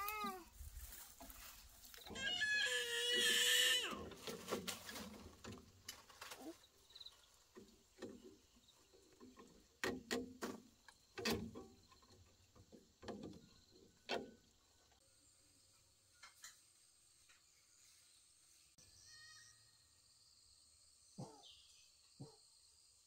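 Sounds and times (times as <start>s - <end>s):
high-pitched cry: 0.0s - 0.5s, 2.1s - 4.0s.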